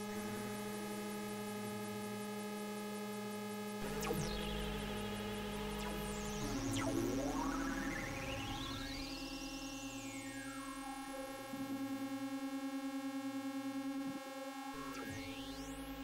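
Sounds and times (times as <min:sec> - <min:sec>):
electronic synthesizer music: 0:03.8 - 0:11.2.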